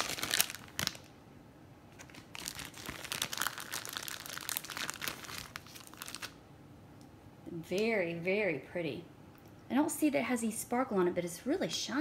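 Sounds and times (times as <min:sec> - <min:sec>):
plastic packaging crinkling: 0:00.0 - 0:01.1, 0:01.9 - 0:06.4
sharp plastic crackle: 0:00.0 - 0:01.1, 0:01.9 - 0:06.4.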